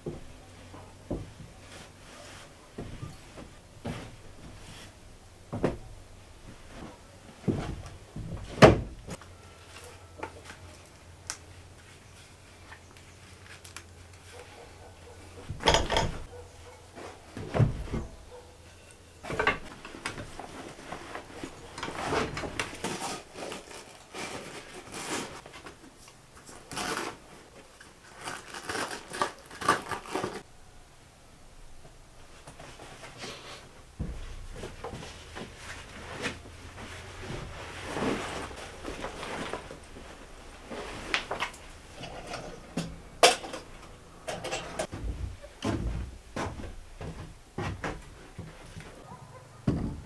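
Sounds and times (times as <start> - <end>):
fabric and canvas rustling: 0.0 - 15.6, 16.2 - 30.5, 32.2 - 44.0
knocks and thumps on wooden planks: 5.5 - 5.9, 44.9 - 48.6, 49.6 - 50.0.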